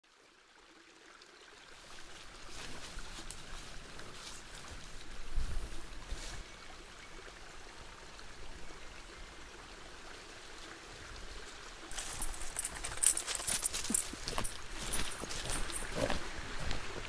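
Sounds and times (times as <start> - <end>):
stream trickling: 0.0 - 17.0
crackling rustle: 1.8 - 6.4, 11.9 - 17.0.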